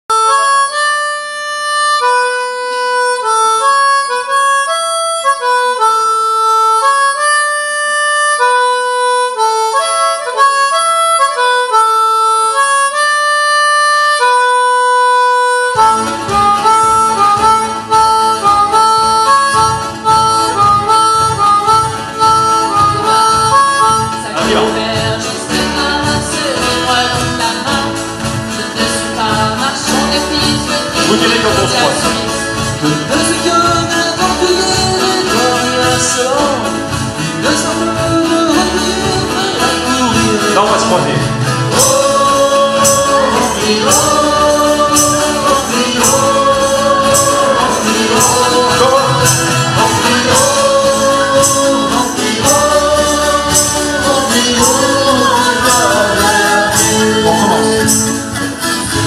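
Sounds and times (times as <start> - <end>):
acoustic guitar: 0.0 - 59.0
harmonica folk melody: 0.0 - 59.0
drum kit: 15.8 - 59.0.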